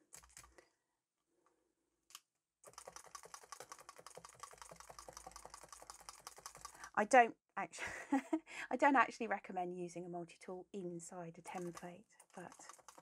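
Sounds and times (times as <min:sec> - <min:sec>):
felting needles tapping: 0:11.5 - 0:13.0.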